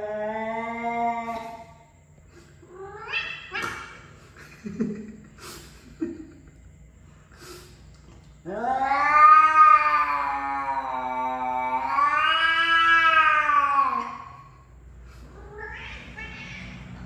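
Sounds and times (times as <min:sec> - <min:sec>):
cats yowling: 0:00.0 - 0:01.7, 0:02.7 - 0:04.1, 0:08.4 - 0:14.6, 0:15.2 - 0:17.0.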